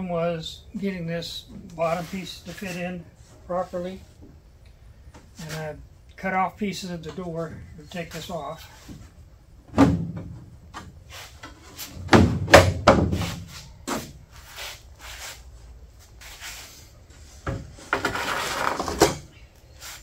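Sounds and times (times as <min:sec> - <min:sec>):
scraping rub: 0:17.8 - 0:19.0.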